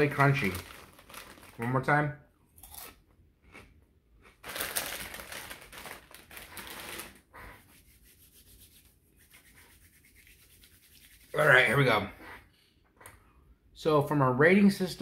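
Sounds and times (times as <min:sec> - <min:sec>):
crisp snack crunching: 0:00.0 - 0:01.8, 0:02.6 - 0:07.2.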